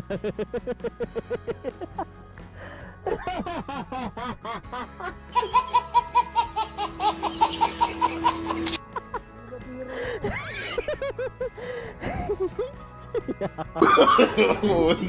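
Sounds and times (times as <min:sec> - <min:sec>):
music: 0:00.0 - 0:15.0
baby laughing: 0:05.4 - 0:08.8.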